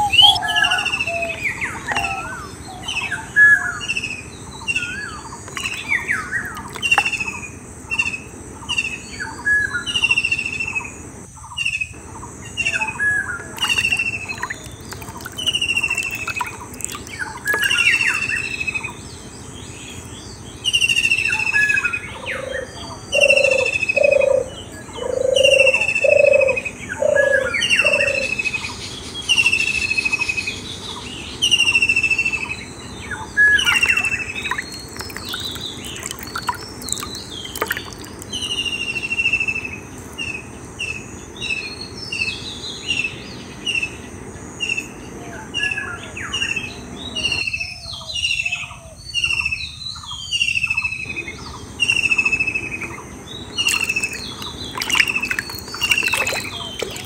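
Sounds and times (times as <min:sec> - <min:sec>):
lower bird call: 0:00.0 - 0:11.0
birds chirping: 0:00.0 - 0:57.0.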